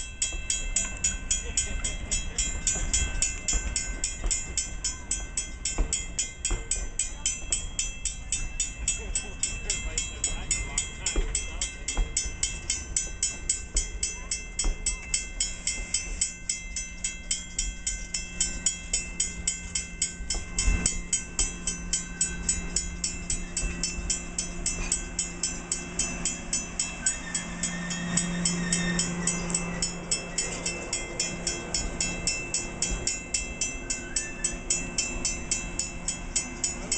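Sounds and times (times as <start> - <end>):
crossing bell ringing: 0.0 - 36.9
train cars rumbling: 0.0 - 36.9
train wheels knocking over rail joints: 0.0 - 36.9
low hum: 10.8 - 36.9.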